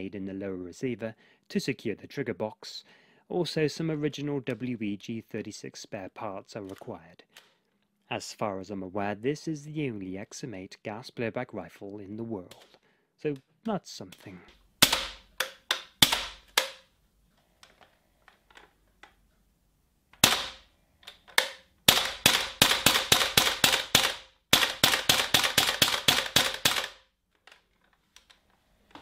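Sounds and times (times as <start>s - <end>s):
airsoft rifle shots: 14.8s - 15.3s, 15.9s - 16.8s, 20.2s - 20.7s, 21.4s - 27.0s.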